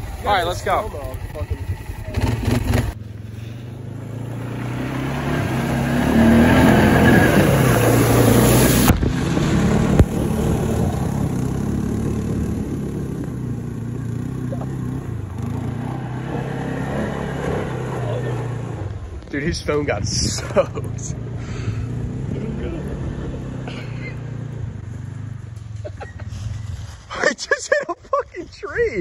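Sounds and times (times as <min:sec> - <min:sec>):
quad bike engine revving: 0:00.0 - 0:25.4
water splashing and spraying: 0:06.1 - 0:10.8.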